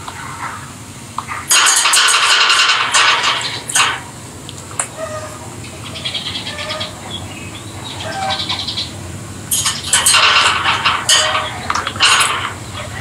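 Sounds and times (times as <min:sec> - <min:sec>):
lovebirds screeching calls: 0:04.7 - 0:13.0
soft high bird chattering: 0:04.9 - 0:13.0.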